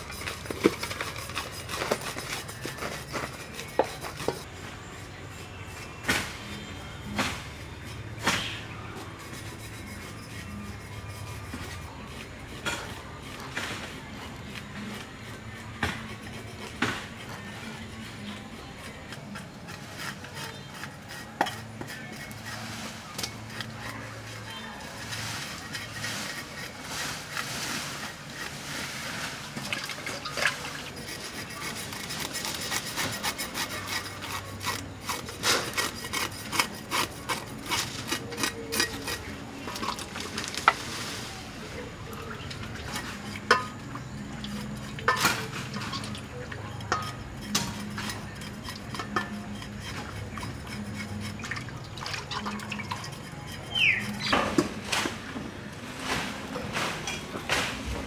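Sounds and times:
water splashing and sloshing: 25.0s - 31.3s, 49.6s - 53.6s.

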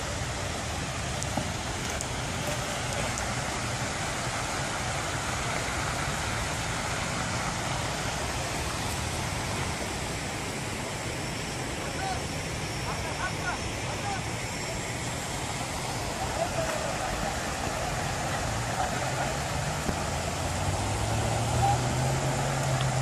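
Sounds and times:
flood water rushing: 0.0s - 23.0s.

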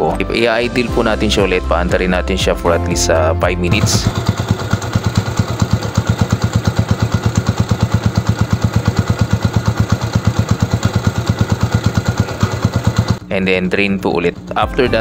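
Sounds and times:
motorcycle engine idling: 3.7s - 13.2s.

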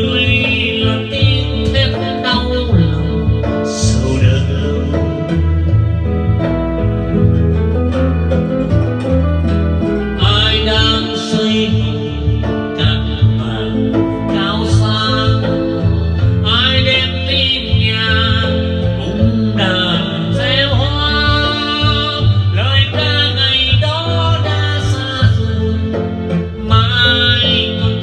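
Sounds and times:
man singing into microphone: 0.0s - 6.1s, 10.1s - 28.0s
backing music: 0.0s - 28.0s.

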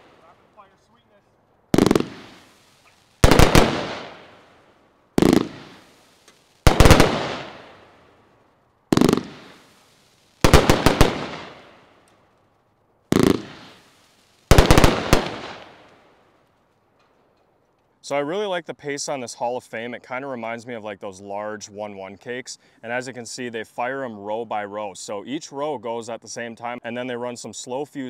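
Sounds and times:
fireworks bangs with rumble: 1.8s - 2.5s, 3.2s - 4.2s, 5.2s - 5.9s, 8.9s - 9.6s, 10.4s - 11.6s, 13.1s - 13.8s.

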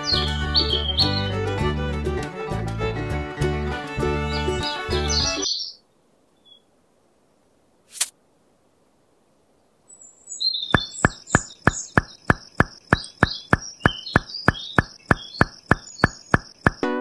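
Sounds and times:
birds chirping: 0.0s - 6.7s, 9.9s - 16.9s
steady knocking: 10.8s - 16.8s.

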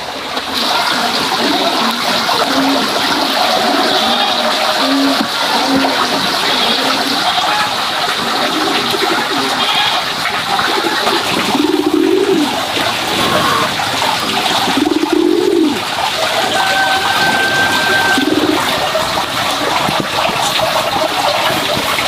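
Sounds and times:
low cooing bird calls: 10.6s - 19.1s.

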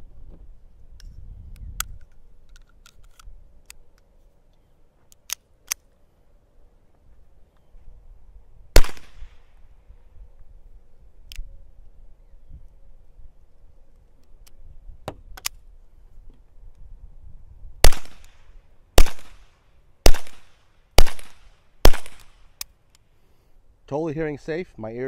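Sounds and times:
metallic clicks of handling pistol: 0.9s - 6.0s, 11.2s - 11.5s, 13.9s - 14.6s, 15.3s - 15.6s, 21.2s - 23.1s
suppressed pistol shot: 8.8s - 9.4s, 17.8s - 22.4s
man explaining: 23.9s - 25.0s.

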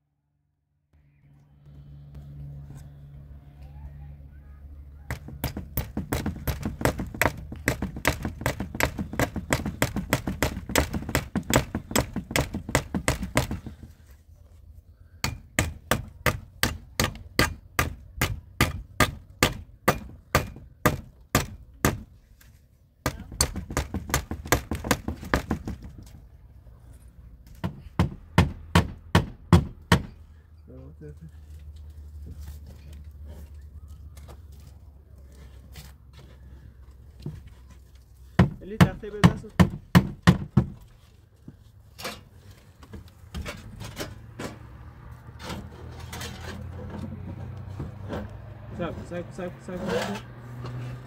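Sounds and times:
hand tool striking wood: 5.1s - 13.8s, 15.2s - 22.1s, 23.0s - 26.0s, 27.6s - 30.2s, 38.3s - 40.8s.

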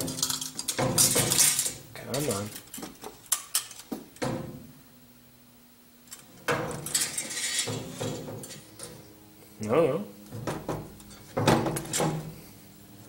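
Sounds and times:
wire hooks scraping and rattling: 0.0s - 3.9s, 6.1s - 9.0s.

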